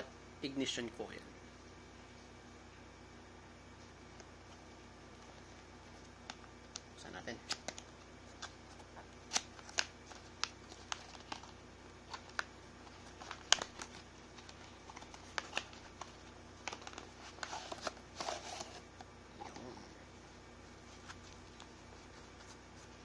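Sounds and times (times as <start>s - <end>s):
packaging rustling: 7.5s - 19.0s.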